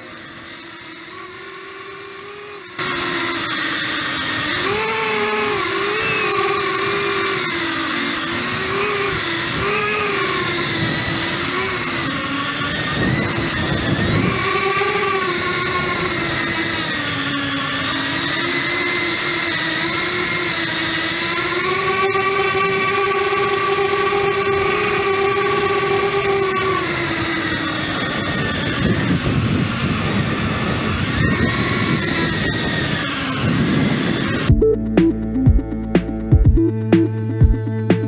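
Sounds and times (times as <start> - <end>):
drone propellers whining: 0.0 - 38.0
wind buffeting microphone: 4.2 - 18.8, 22.0 - 34.6.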